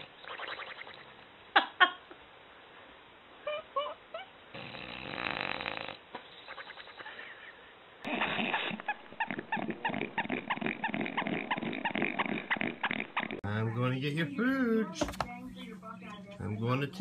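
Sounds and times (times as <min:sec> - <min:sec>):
dog snoring: 0:04.5 - 0:07.0, 0:08.0 - 0:13.4.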